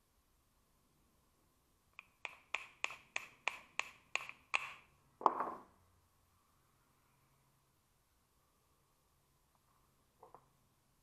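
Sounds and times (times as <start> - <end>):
small hammer tapping on metal: 2.0 - 4.8.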